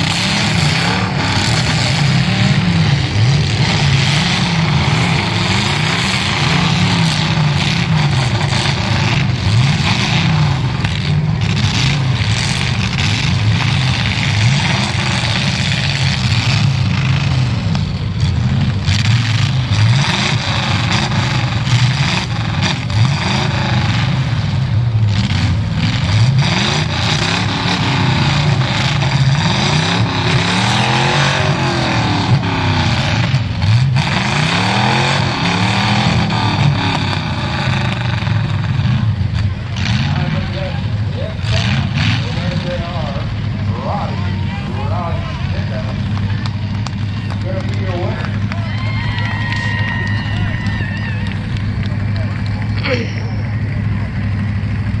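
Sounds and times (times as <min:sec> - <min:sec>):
car engines revving hard: 0:00.0 - 0:55.0.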